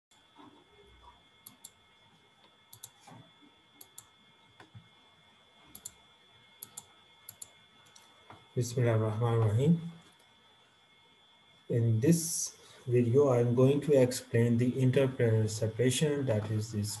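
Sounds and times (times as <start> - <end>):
computer mouse clicks: 1.4 - 1.8, 2.7 - 3.2, 3.8 - 4.9, 5.7 - 6.0, 6.6 - 8.4.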